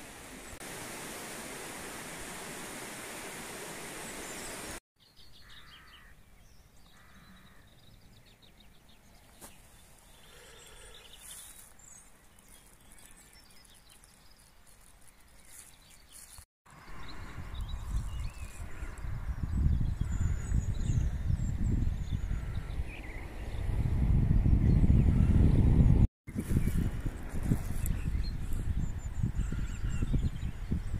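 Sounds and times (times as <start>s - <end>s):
river water rushing over stones: 0.0s - 4.8s
birds calling: 4.0s - 23.7s
harsh bird calls: 5.1s - 11.7s.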